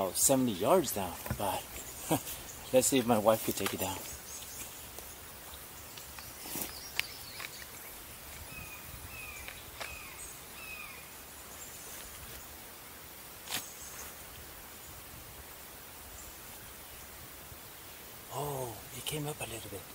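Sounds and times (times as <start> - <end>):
faint hiss: 0.0 - 19.9
bird chirps: 1.5 - 12.0.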